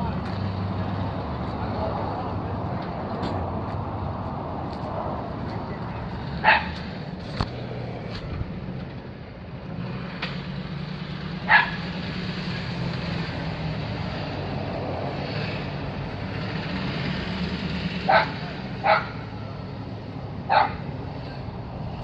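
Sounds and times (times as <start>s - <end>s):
dog barking: 6.4s - 6.8s, 11.5s - 11.8s, 18.1s - 19.2s, 20.5s - 20.8s.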